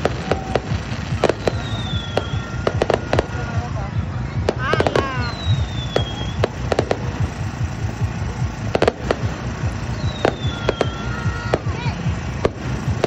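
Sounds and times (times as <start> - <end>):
fireworks booming and cracking: 0.0 - 13.0
high falling whistle: 1.4 - 3.7, 5.0 - 6.5.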